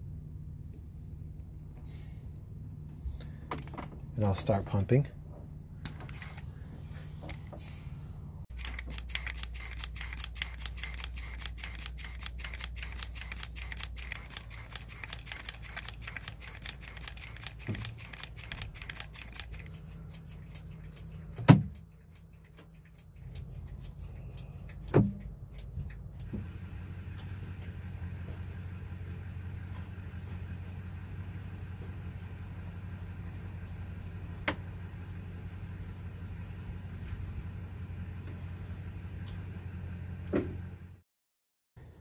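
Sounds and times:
low steady hum: 0:00.0 - 0:39.8
rapid even clicking: 0:08.5 - 0:26.3.

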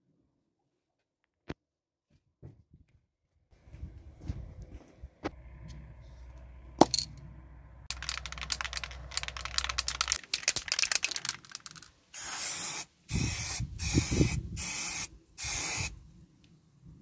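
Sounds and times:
spray can ball rattling: 0:07.9 - 0:15.9
spray can hissing: 0:07.9 - 0:15.9.

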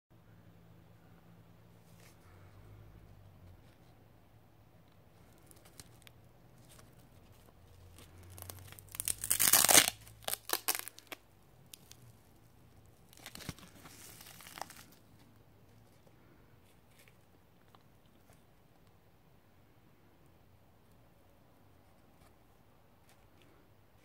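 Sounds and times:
velcro ripping apart: 0:07.8 - 0:12.1, 0:13.0 - 0:15.1.

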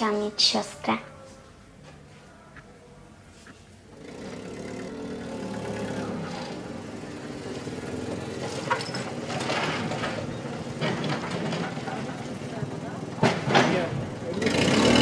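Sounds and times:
forklift engine running: 0:03.9 - 0:15.0.

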